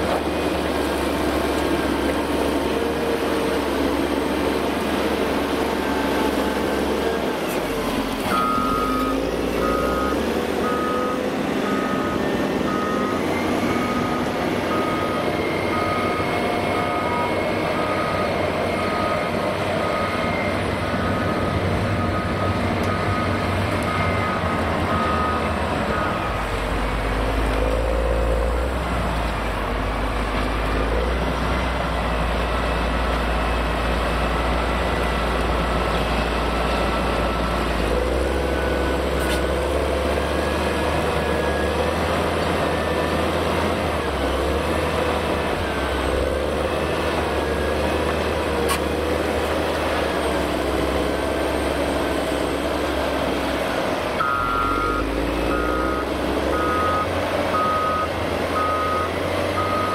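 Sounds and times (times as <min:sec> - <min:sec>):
diesel engine under load: 0:00.0 - 0:59.9
reversing alarm beeping: 0:08.2 - 0:26.6, 0:54.2 - 0:59.9.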